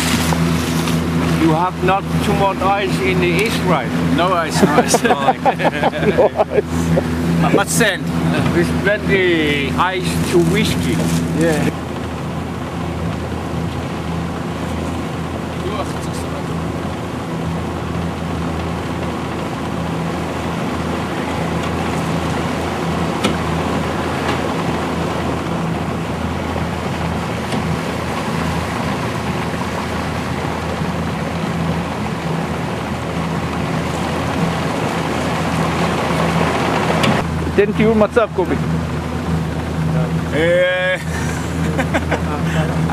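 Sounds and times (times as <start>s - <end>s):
motorboat engine running: 0.0s - 42.9s
water rushing along hull: 0.0s - 42.9s.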